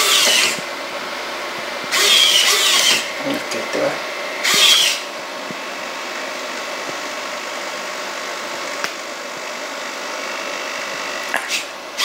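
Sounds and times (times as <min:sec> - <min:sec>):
servo motors whirring: 0:00.0 - 0:00.7, 0:01.8 - 0:05.6, 0:10.9 - 0:12.0
mechanical hum with hiss: 0:00.0 - 0:12.0.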